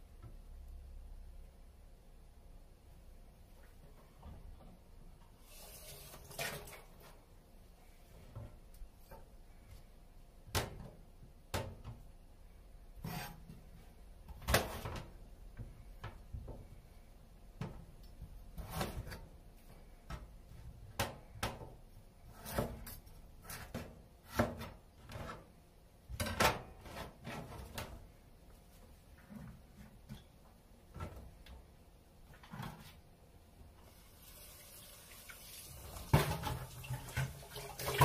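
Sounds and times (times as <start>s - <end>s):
knife scraping strokes: 13.0s - 13.4s.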